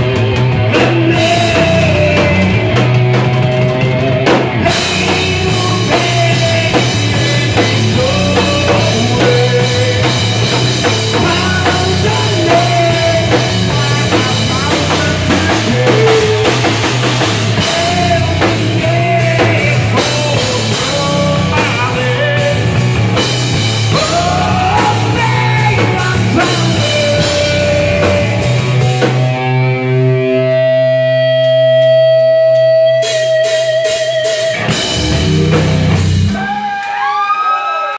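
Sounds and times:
drum kit: 0.0 - 37.2
electric guitar: 0.0 - 37.8
person singing: 0.5 - 3.0, 4.5 - 23.0, 23.9 - 29.1.

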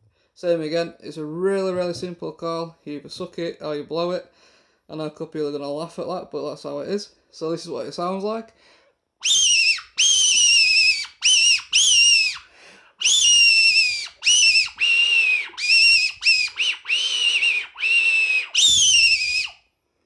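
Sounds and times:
shrill fox call squeals: 9.2 - 19.6.

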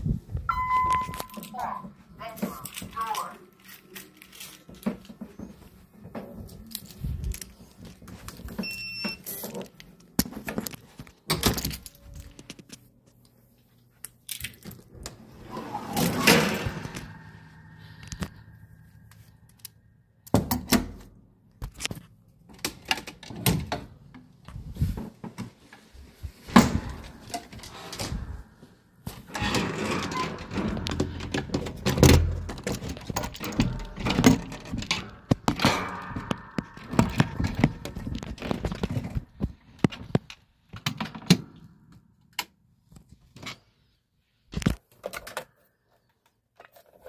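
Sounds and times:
short high beep: 0.5 - 1.4
wooden ladder knocks and rattles: 26.5 - 28.2, 29.3 - 40.2.

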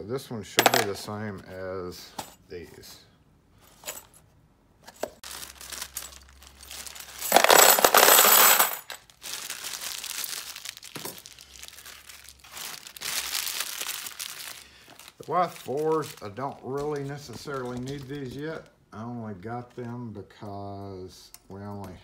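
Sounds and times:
keys clinking and rattling: 3.7 - 4.2, 5.6 - 9.1
metal keys clattering into plastic bin: 5.8 - 9.0.

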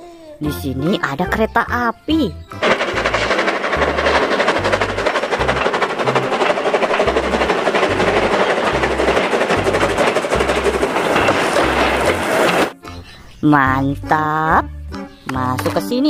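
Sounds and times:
steam locomotive rush and clatter: 2.5 - 12.8.

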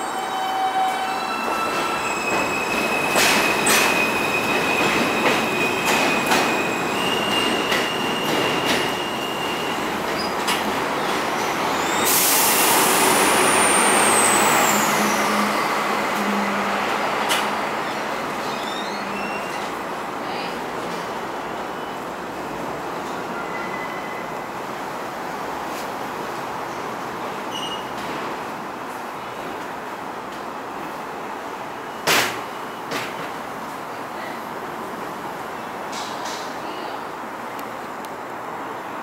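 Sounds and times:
train rushing with wheel squeal: 0.0 - 19.8, 27.4 - 28.2.

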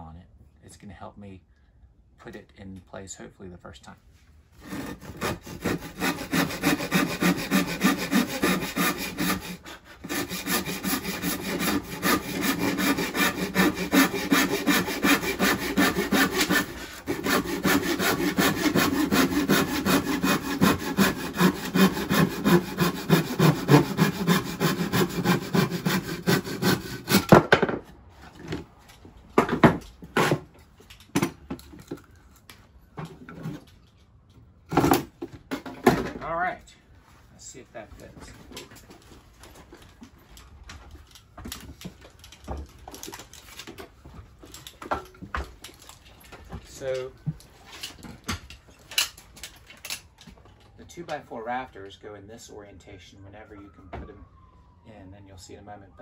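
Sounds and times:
handsaw cutting wood: 4.6 - 27.4.

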